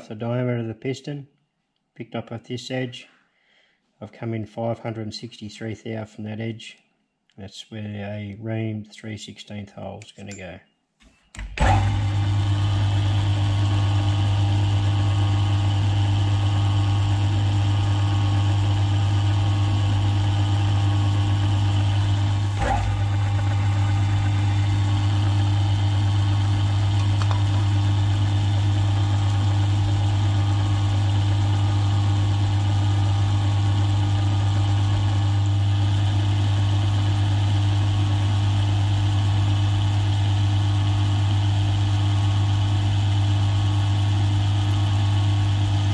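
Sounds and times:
milling machine drilling metal: 15.3 - 38.6.

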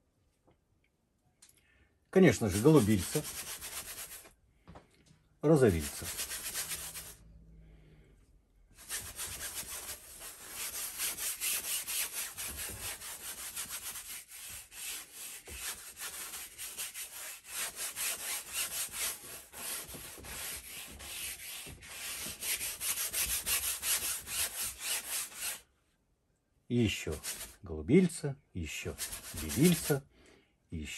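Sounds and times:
bristle brush scrubbing canvas: 2.3 - 4.3, 5.7 - 7.2, 8.8 - 25.6, 26.9 - 27.6, 28.9 - 30.0.

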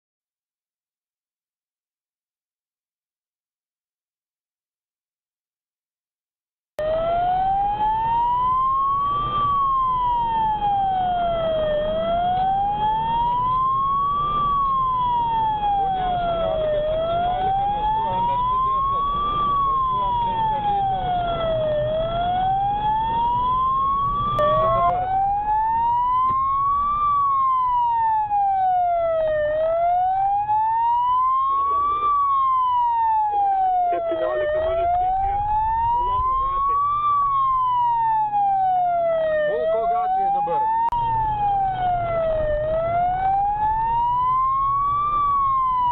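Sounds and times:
car engine and road noise: 6.8 - 31.0, 40.9 - 45.9
police siren wailing: 6.8 - 45.9.

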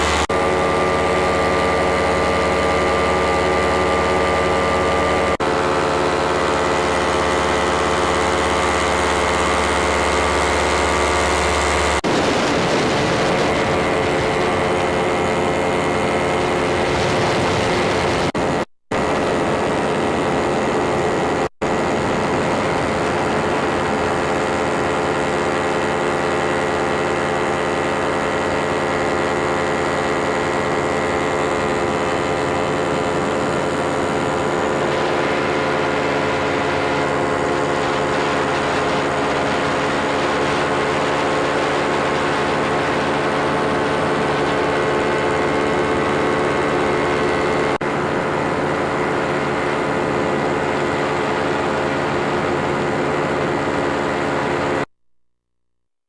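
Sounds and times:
engine and propeller drone: 0.0 - 54.9
wind noise: 11.5 - 26.6.

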